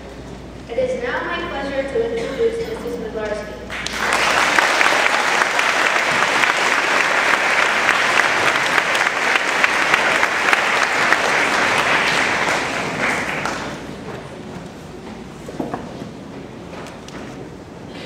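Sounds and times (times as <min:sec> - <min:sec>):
audience applauding: 0:03.7 - 0:14.0.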